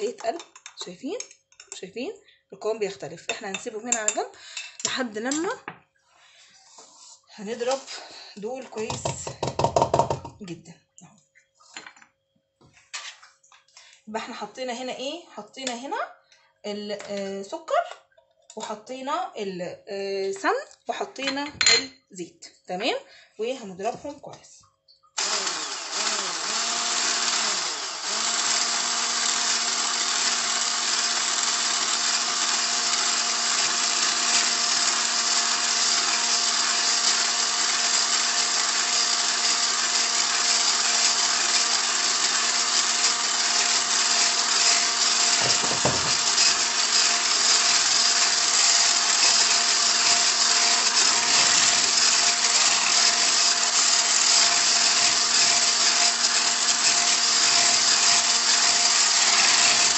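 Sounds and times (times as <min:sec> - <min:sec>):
electric hand mixer running: 0:25.2 - 0:59.9.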